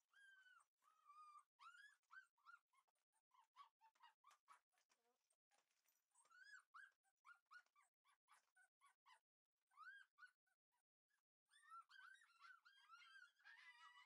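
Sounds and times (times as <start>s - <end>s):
puppy whining: 0.1s - 4.6s, 6.2s - 10.4s, 11.5s - 14.0s.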